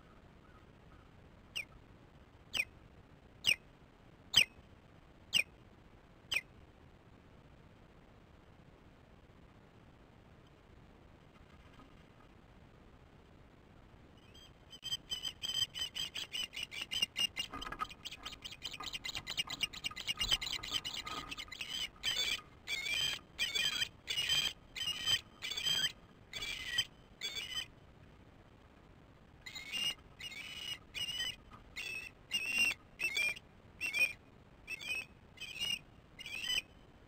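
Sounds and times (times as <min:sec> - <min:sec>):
ospreys calling: 0:14.3 - 0:27.7, 0:29.4 - 0:36.7.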